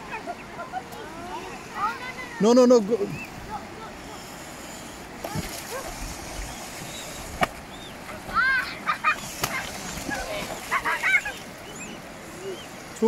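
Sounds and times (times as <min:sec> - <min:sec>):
swan splashing and flapping in water: 0:05.2 - 0:11.7.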